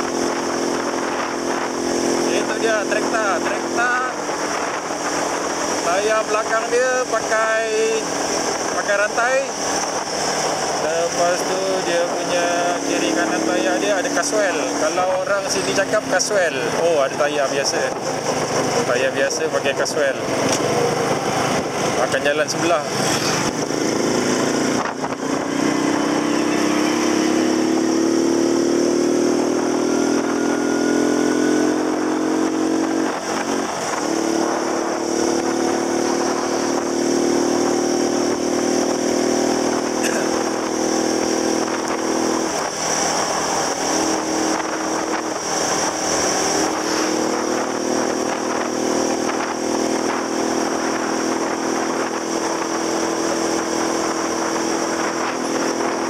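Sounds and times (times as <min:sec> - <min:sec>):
motor scooter engine running: 0:22.6 - 0:56.0.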